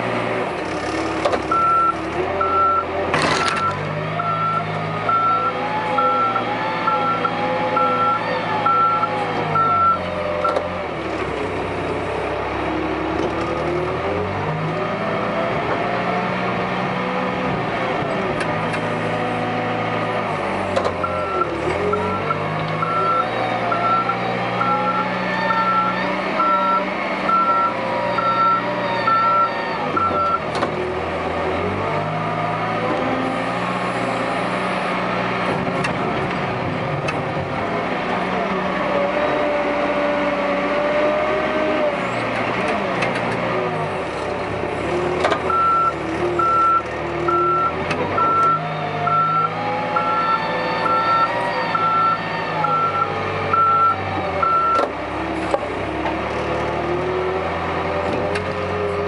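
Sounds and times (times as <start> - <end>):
diesel engine running: 0.0 - 59.0
reversing alarm beeping: 1.5 - 2.9, 3.6 - 10.6, 21.0 - 30.4, 45.5 - 54.8.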